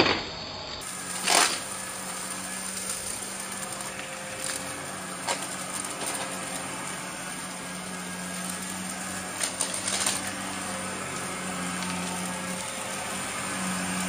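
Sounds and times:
vacuum cleaner running: 0:00.4 - 0:14.0
debris rattling into vacuum: 0:00.8 - 0:14.0.

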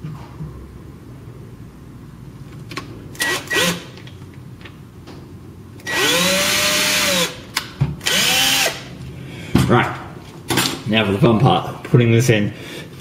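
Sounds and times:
power drill boring into wood: 0:03.2 - 0:03.8, 0:05.8 - 0:07.4, 0:08.0 - 0:08.9.

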